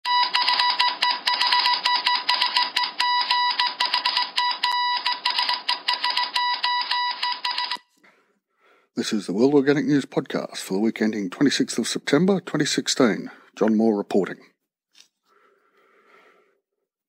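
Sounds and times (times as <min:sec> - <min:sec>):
rapid clicking: 0:00.4 - 0:06.6.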